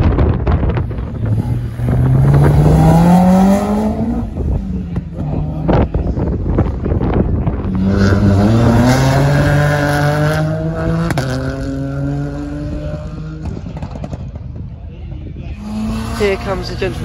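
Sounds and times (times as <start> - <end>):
race car engine accelerating: 0.8 - 14.2.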